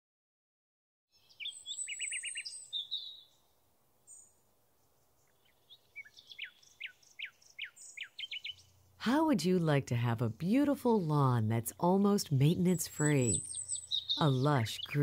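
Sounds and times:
songbirds singing: 0:01.1 - 0:15.0.

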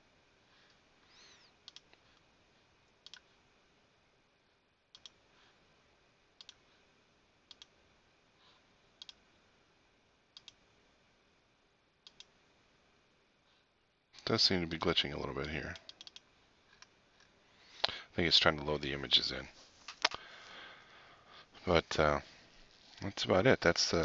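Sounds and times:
computer mouse clicks: 0:01.1 - 0:02.3, 0:03.0 - 0:03.3, 0:04.9 - 0:05.2, 0:06.4 - 0:06.6, 0:07.5 - 0:07.8, 0:09.0 - 0:09.2, 0:10.4 - 0:10.6, 0:12.0 - 0:12.4, 0:15.4 - 0:16.9.

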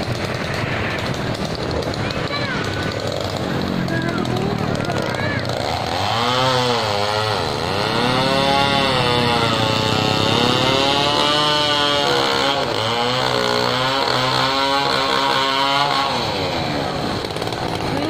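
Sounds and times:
chainsaw cutting wood: 0:00.0 - 0:18.0.

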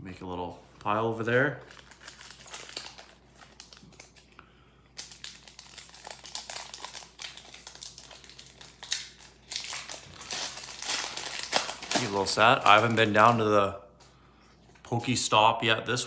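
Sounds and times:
foil wrapper crinkling: 0:00.8 - 0:04.3, 0:05.0 - 0:13.5.

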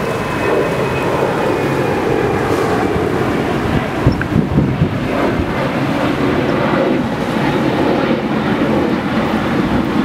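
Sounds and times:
rush of boat wake: 0:00.0 - 0:10.0.

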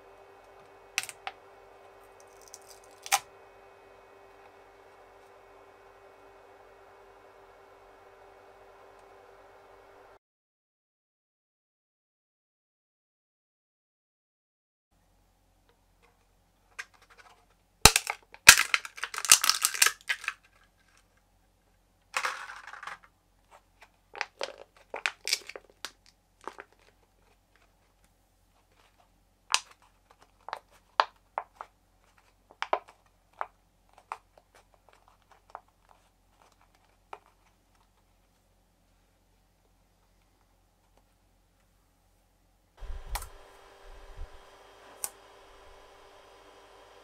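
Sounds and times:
plastic crackling: 0:00.4 - 0:03.3, 0:16.7 - 0:21.2, 0:22.2 - 0:38.4
plastic cracking: 0:00.9 - 0:01.4, 0:02.2 - 0:03.3, 0:16.7 - 0:21.2, 0:23.8 - 0:38.1
plastic crinkling and clicking: 0:02.2 - 0:03.3, 0:16.1 - 0:21.2, 0:22.2 - 0:38.4.

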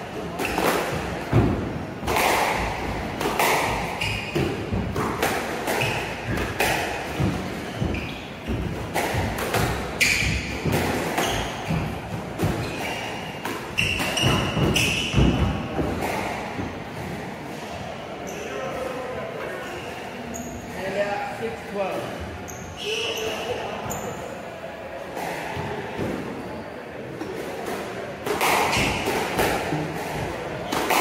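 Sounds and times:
squash ball striking rackets and walls: 0:00.0 - 0:17.7, 0:27.1 - 0:31.0
shoes squeaking on hardwood floor: 0:03.4 - 0:05.1, 0:05.7 - 0:16.8, 0:19.6 - 0:20.9, 0:22.0 - 0:24.4.

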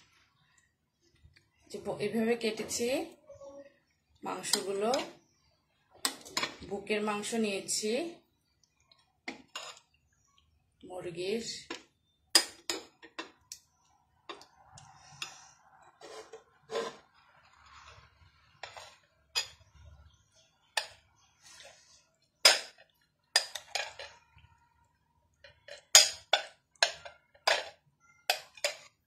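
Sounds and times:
metal spoon clinking ceramic bowl: 0:25.6 - 0:29.0.

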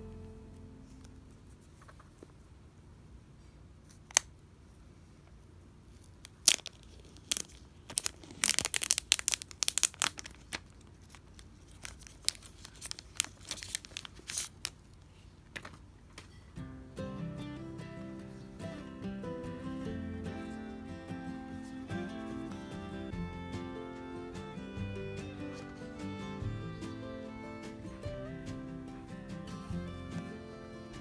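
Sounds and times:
plastic wrap crinkling and tearing: 0:06.0 - 0:15.1.

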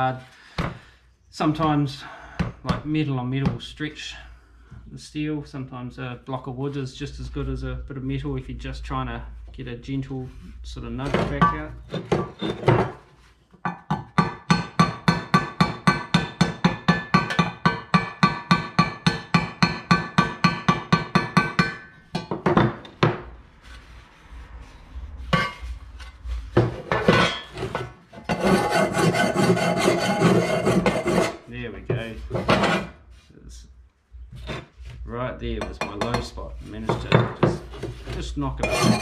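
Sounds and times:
file rasping across steel: 0:24.5 - 0:31.5, 0:32.3 - 0:33.0.

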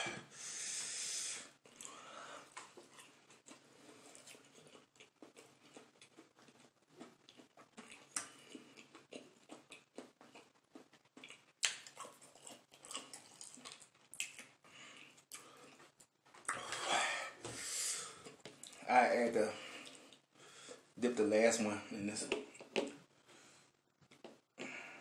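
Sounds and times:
person chewing: 0:01.6 - 0:18.9, 0:19.7 - 0:20.8, 0:24.1 - 0:24.8.

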